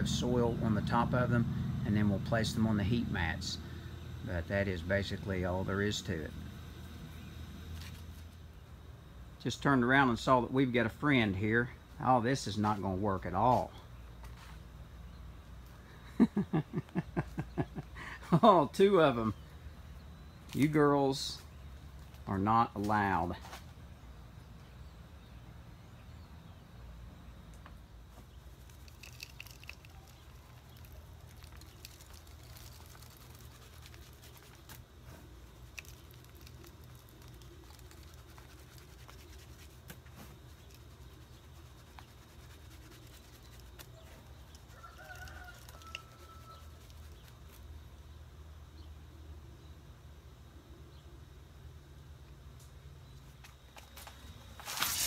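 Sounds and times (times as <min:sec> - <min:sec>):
steady low hum: 0:00.0 - 0:55.0
light scattered ticks: 0:27.5 - 0:47.8.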